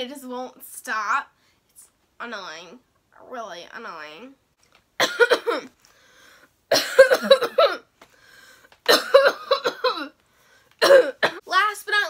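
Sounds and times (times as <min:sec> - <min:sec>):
woman coughing: 0:05.0 - 0:05.7, 0:06.7 - 0:07.9, 0:08.9 - 0:10.2, 0:10.8 - 0:11.5.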